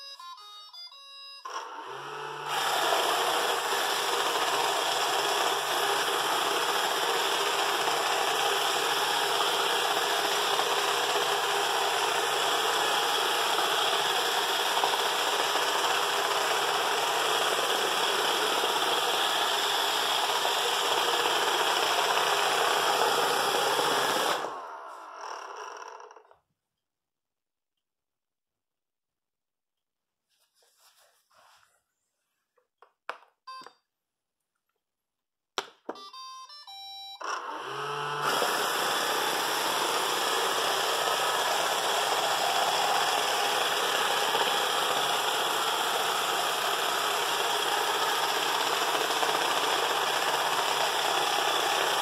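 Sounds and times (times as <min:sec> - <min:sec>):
robotic vacuum whirring: 0:01.5 - 0:26.3, 0:37.2 - 0:52.0.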